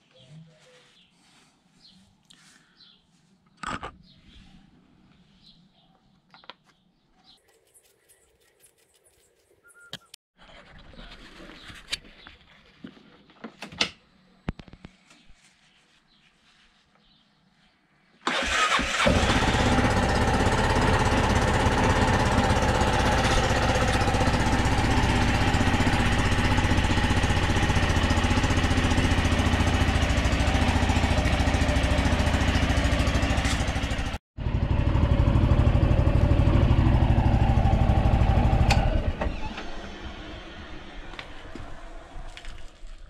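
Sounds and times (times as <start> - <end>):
scooter engine starting and idling: 18.2 - 43.0.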